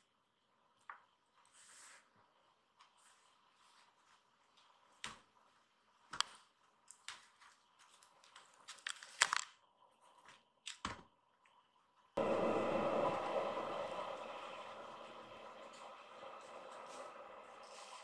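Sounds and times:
loud steady noise: 12.2s - 17.0s.

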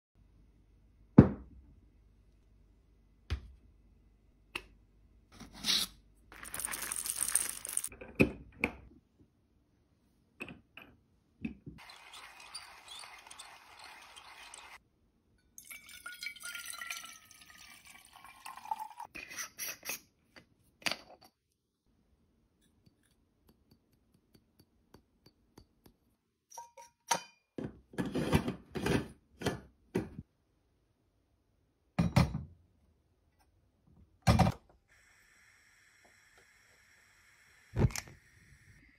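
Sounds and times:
water pouring into metal pot: 11.8s - 14.8s, 15.6s - 19.1s.

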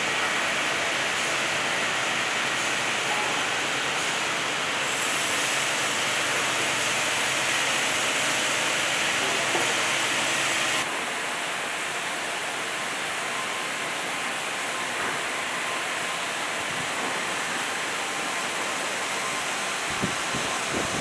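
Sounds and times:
sawmill machinery hissing: 0.0s - 21.0s.

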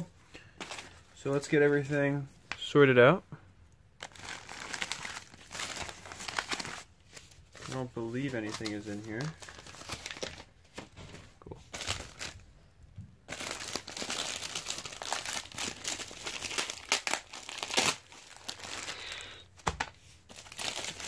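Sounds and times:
plastic bags crinkling: 4.0s - 12.5s, 13.3s - 21.0s.

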